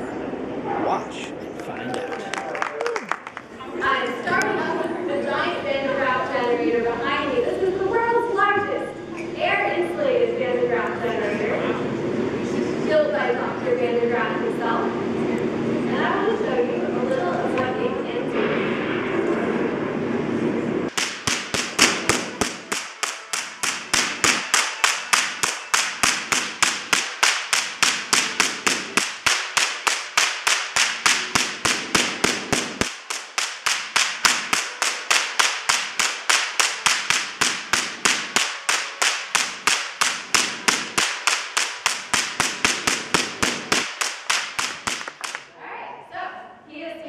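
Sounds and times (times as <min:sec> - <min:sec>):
electric sparks snapping: 0:20.9 - 0:45.5.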